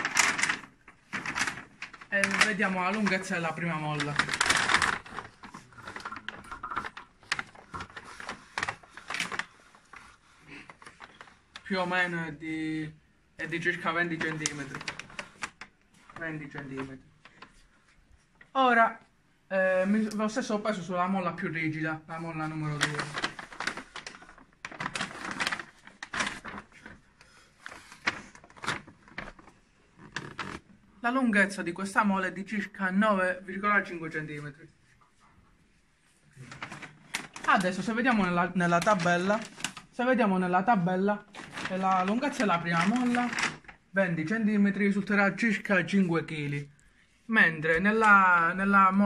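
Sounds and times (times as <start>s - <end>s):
plastic bag rustling: 0.0s - 12.4s, 13.4s - 18.0s, 21.5s - 30.8s, 36.2s - 40.1s, 41.1s - 44.0s.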